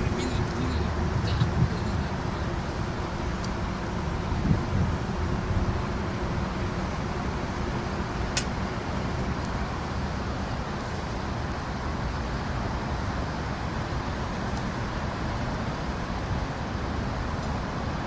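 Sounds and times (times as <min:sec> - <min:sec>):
wind on microphone: 0:00.0 - 0:03.0, 0:03.6 - 0:06.1
road traffic rumble: 0:00.0 - 0:18.0.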